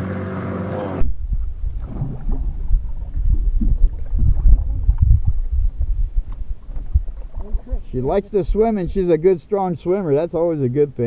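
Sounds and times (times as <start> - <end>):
wind buffeting microphone: 1.0 - 9.4
light ticks of water: 2.9 - 7.6.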